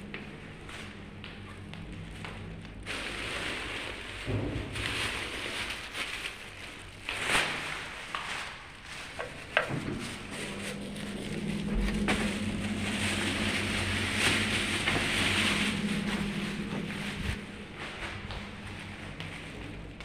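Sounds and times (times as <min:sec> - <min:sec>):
elevator motor hum: 0:09.1 - 0:20.0
rushing air: 0:12.2 - 0:18.2.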